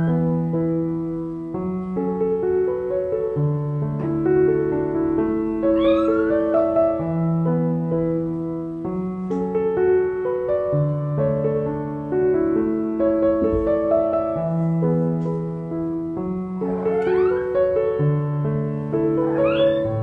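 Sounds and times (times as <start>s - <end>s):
slow gentle piano music: 0.0s - 20.0s
kitten meowing: 5.6s - 6.8s, 16.6s - 17.6s, 19.2s - 20.0s.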